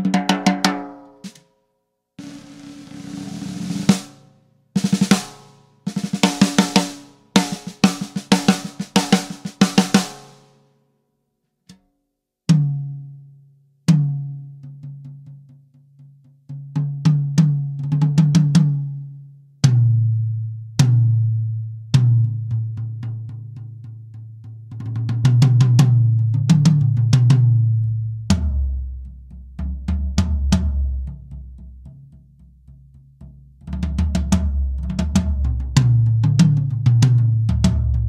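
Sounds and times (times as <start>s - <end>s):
drum roll and fills: 0.0s - 1.4s, 2.2s - 10.6s, 33.8s - 38.0s.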